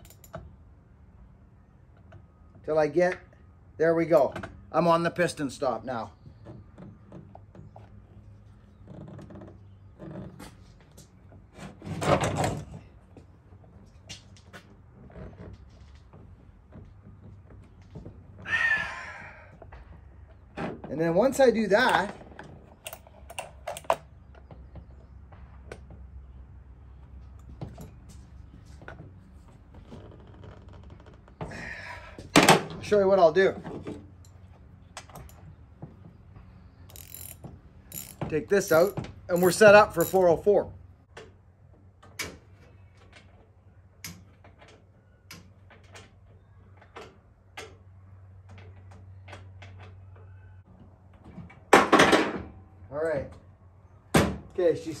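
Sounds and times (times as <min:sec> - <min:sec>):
hand tools clicking on metal: 0:36.9 - 0:40.4.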